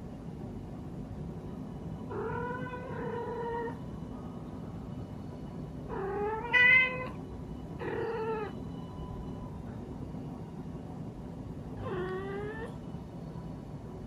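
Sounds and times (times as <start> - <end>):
cat meowing: 2.1 - 3.8, 5.9 - 7.2, 7.8 - 8.6, 11.8 - 12.8.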